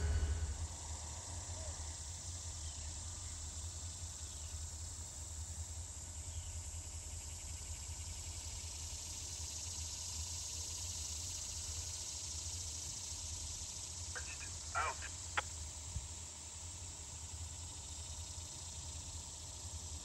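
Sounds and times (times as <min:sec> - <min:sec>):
insects droning: 0:00.0 - 0:00.8, 0:02.6 - 0:20.0
steady low rumble: 0:00.0 - 0:00.8.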